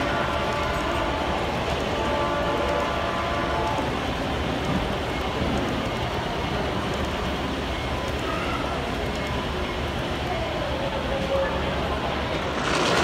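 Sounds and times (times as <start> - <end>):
model train wheels rumbling: 9.1 - 13.0.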